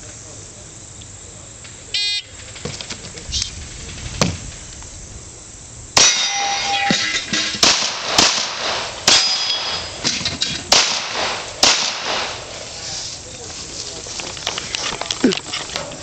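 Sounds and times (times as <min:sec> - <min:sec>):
steel plate clanging: 0:06.0 - 0:10.7
pistol shots: 0:07.5 - 0:10.0, 0:10.7 - 0:12.5.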